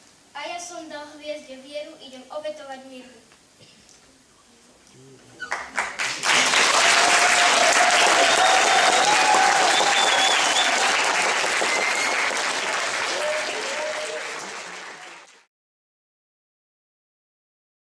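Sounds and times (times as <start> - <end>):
audience applauding: 5.4 - 15.5.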